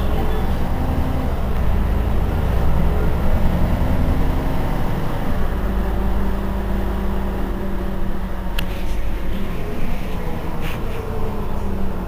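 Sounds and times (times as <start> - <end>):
bus engine idling: 0.0 - 12.0.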